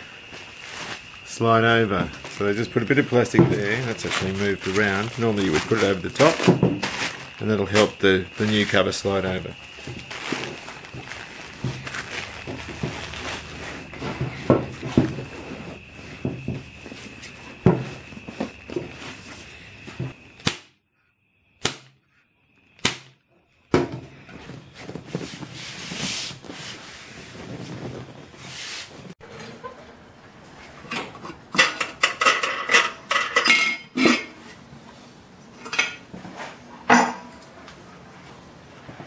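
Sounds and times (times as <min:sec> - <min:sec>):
vinyl and plastic rustling: 0:00.0 - 0:20.2, 0:24.2 - 0:29.2
faint high whine: 0:00.0 - 0:28.4.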